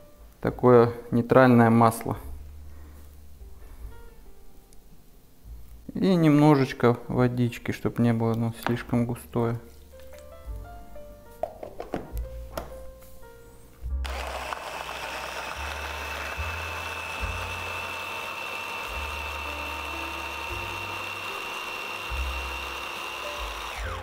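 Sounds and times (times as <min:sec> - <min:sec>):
hand blender motor whining: 0:14.0 - 0:24.0.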